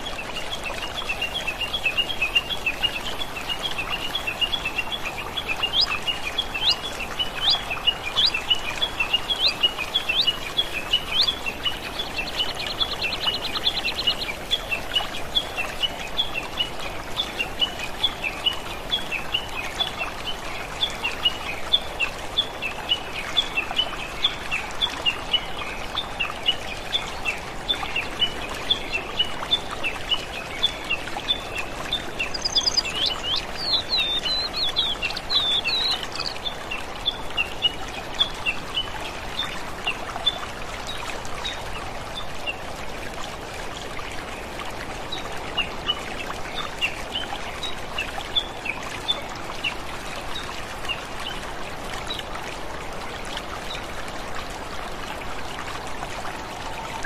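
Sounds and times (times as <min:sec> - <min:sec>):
songbirds chirping: 0:00.0 - 0:42.7
running water: 0:00.0 - 0:57.0.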